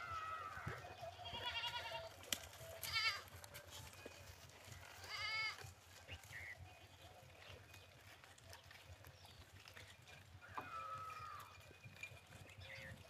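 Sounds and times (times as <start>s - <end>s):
goats bleating: 0.0s - 3.4s, 4.8s - 5.8s, 10.4s - 11.6s.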